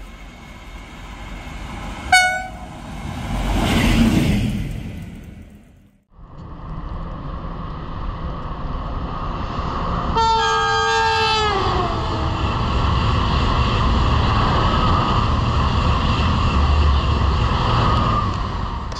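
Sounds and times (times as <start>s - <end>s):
high-speed train rushing past: 0.0s - 18.9s
train horn: 2.1s - 2.9s, 10.2s - 12.4s.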